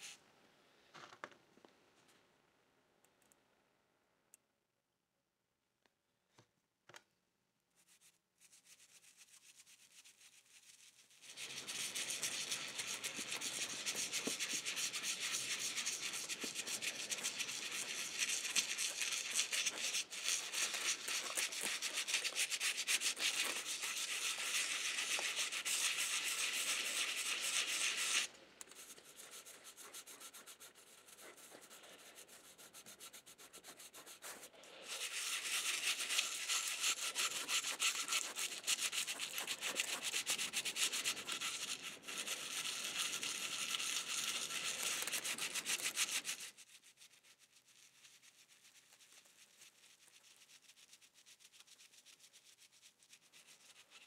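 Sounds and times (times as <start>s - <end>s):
brush scrubbing metal: 8.8s - 46.6s.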